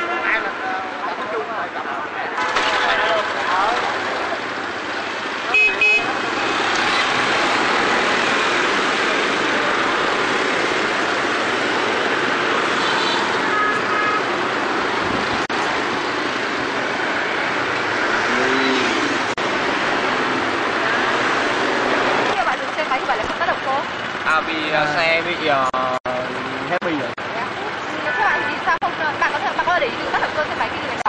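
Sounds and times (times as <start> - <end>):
motorbike and car traffic: 0.0 - 31.0
horn beeps: 5.5 - 7.0.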